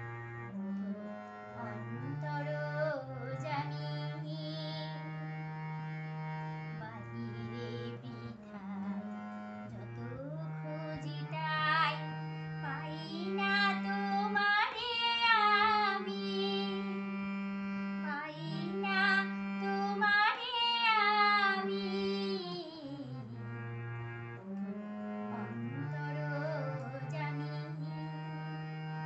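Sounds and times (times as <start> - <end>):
harmonium playing low notes: 0.0 - 29.0
woman singing: 1.6 - 5.1, 6.8 - 9.1, 9.8 - 17.0, 18.0 - 23.4, 25.8 - 28.0.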